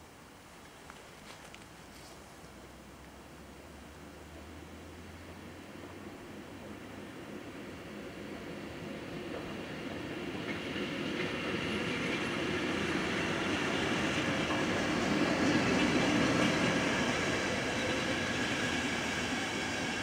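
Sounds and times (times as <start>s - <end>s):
train wheels rolling on track: 5.2s - 20.0s.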